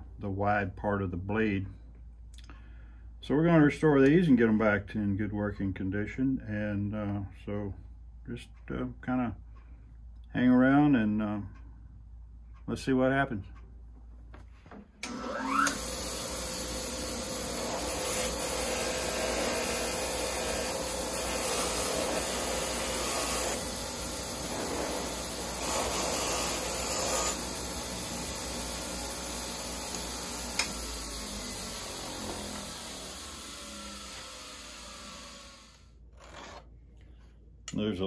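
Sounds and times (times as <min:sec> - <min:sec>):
bench grinder running: 0:15.0 - 0:36.4
metal grinding hiss: 0:17.5 - 0:28.4.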